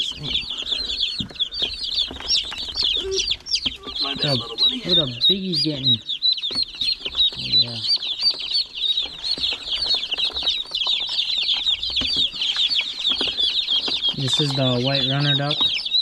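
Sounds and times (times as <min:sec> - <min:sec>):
baby chicks and ducklings peeping: 0:00.0 - 0:16.0.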